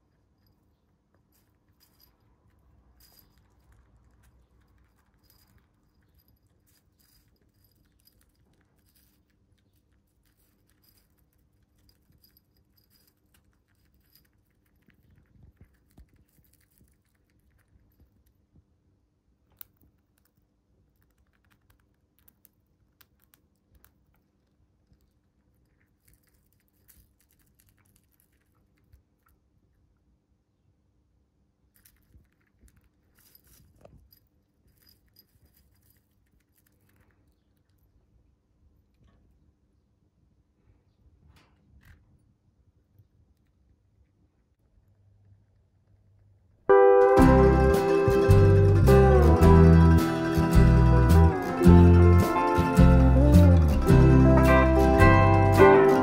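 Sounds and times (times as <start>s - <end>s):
seeds rattling in ceramic bowl: 0.0s - 18.0s, 31.8s - 37.1s.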